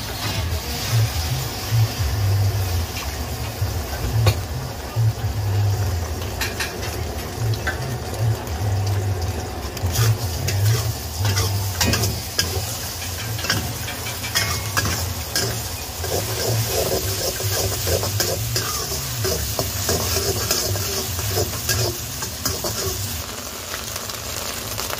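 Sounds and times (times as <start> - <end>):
eggs sizzling in a wok: 0.0 - 24.9
metal spatula scraping a pan: 9.9 - 23.1.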